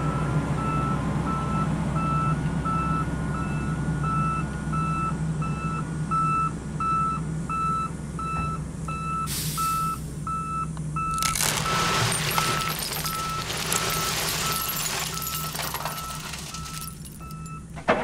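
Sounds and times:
truck backup alarm beeping: 0:00.0 - 0:11.8, 0:15.9 - 0:17.8.

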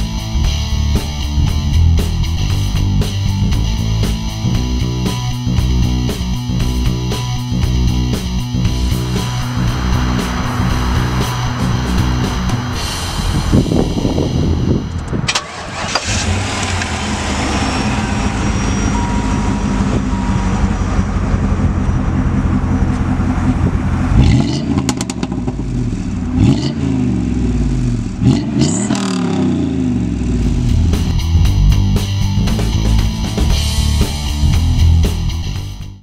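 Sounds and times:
engine revving: 0:00.0 - 0:35.5
car engine starting and idling: 0:00.0 - 0:36.0.

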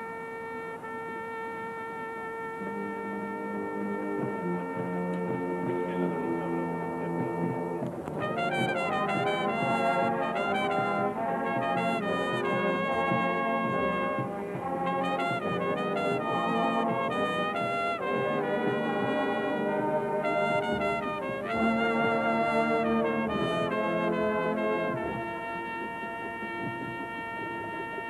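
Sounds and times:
marching band brass playing: 0:00.0 - 0:28.0.

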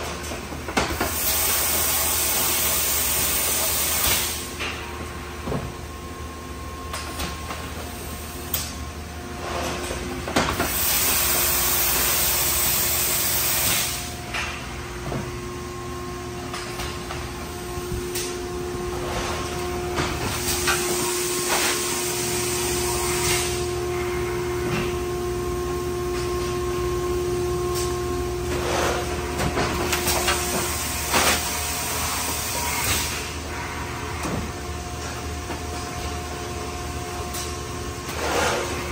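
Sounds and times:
machine hum: 0:00.0 - 0:38.9
hissing air blasts: 0:10.6 - 0:14.1.

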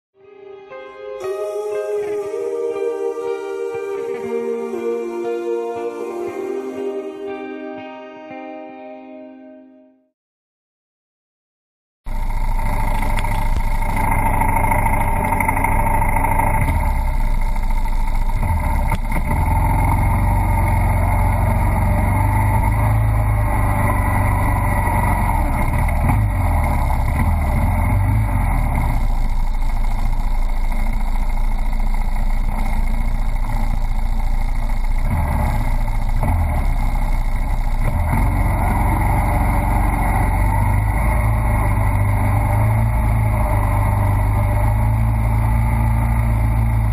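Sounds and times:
four-stroke engine running: 0:12.1 - 0:46.9.

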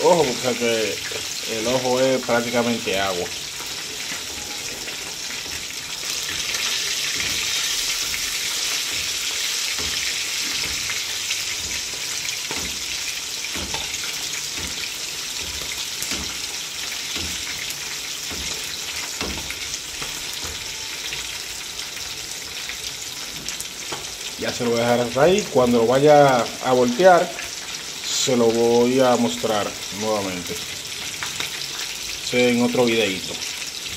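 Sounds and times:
oil spattering crackles: 0:00.0 - 0:20.8, 0:29.2 - 0:33.9
fish frying in oil: 0:00.0 - 0:33.9.

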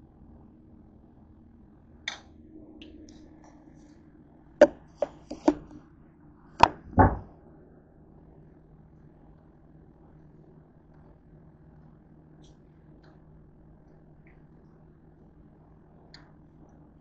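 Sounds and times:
objects knocking on kitchen counter: 0:04.6 - 0:05.6.

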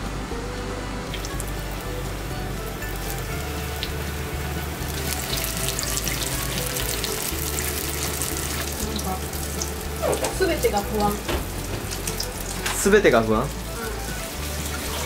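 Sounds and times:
chicken sizzling in hot oil: 0:01.1 - 0:15.0.

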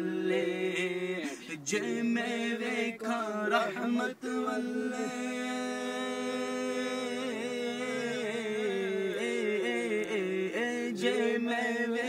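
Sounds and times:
man singing without words: 0:00.0 - 0:12.0.

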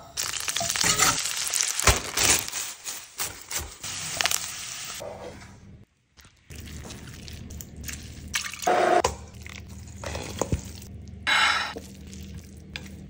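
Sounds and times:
wet squelching of meat: 0:06.2 - 0:08.6.

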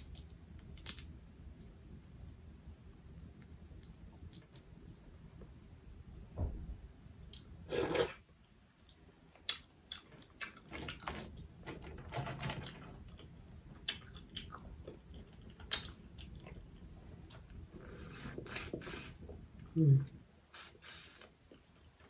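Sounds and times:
crawfish shells cracking: 0:00.0 - 0:01.7.

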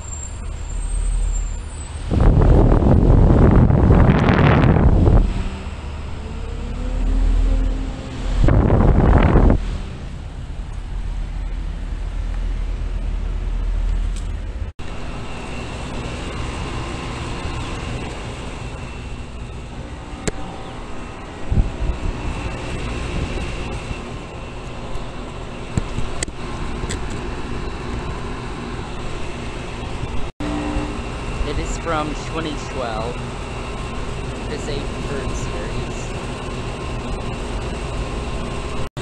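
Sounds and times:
heat pump hum and fan: 0:00.0 - 0:38.9
rushing air: 0:01.2 - 0:13.8, 0:14.4 - 0:37.3
faint high whine: 0:10.3 - 0:38.9.

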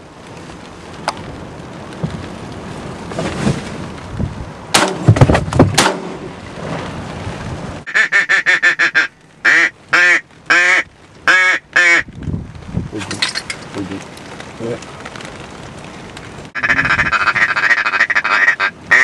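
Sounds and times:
sharp loud bangs: 0:04.7 - 0:06.3
duck quacking: 0:07.9 - 0:12.0, 0:16.6 - 0:19.0.

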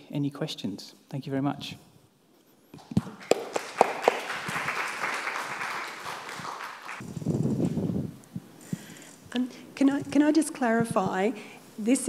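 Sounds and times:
audience applauding: 0:02.8 - 0:07.0.

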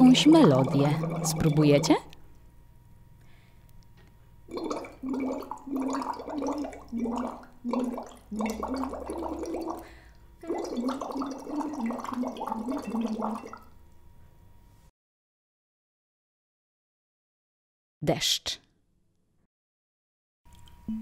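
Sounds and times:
straw bubbling in water: 0:00.0 - 0:02.0, 0:04.5 - 0:13.8.

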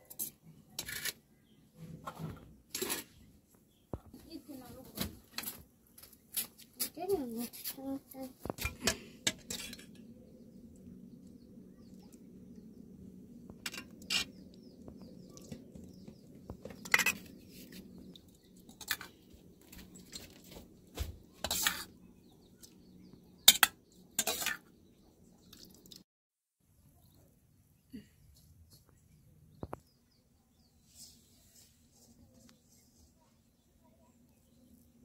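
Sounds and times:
steel dishes clinking and scraping: 0:08.6 - 0:10.0, 0:23.5 - 0:24.6.

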